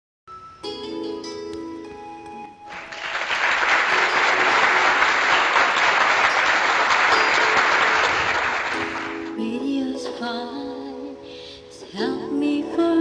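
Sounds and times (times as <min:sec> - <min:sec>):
applause-like noise: 0:02.7 - 0:09.3.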